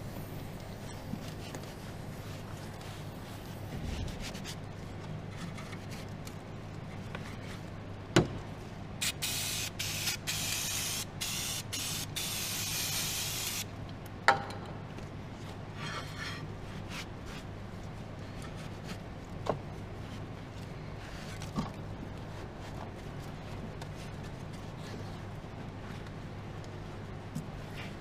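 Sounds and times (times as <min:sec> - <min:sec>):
aerosol spray can hissing: 0:09.0 - 0:13.6.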